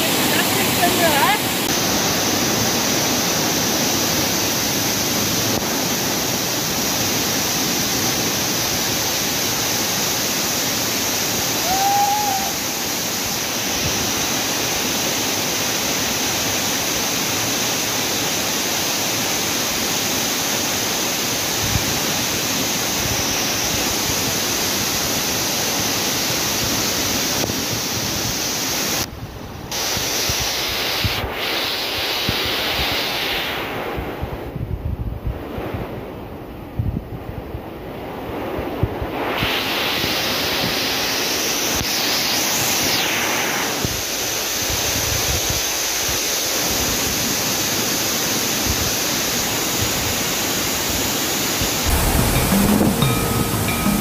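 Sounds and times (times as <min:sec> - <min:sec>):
waterfall crashing onto rocks: 0:00.0 - 0:29.1, 0:43.8 - 0:54.0.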